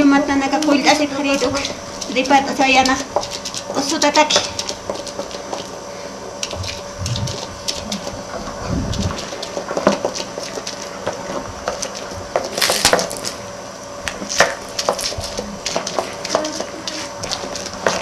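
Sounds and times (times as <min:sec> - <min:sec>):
plants crushed on flat stone: 0:12.4 - 0:13.4.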